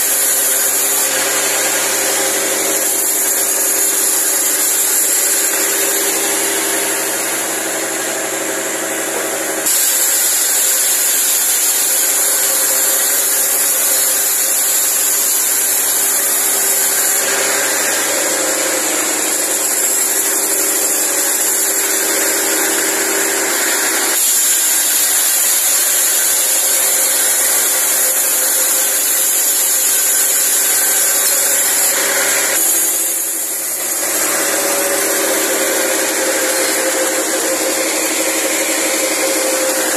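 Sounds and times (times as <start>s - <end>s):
sawmill saw cutting wood: 0.0s - 39.9s.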